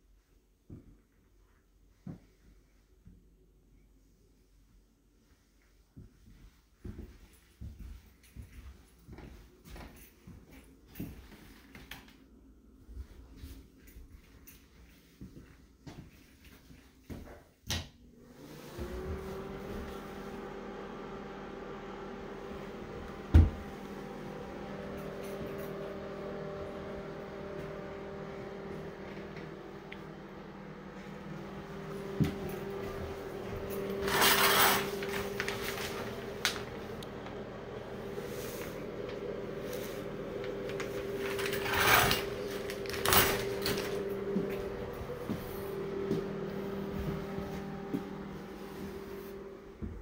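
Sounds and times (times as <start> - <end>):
steady low hum: 19.1 - 50.0.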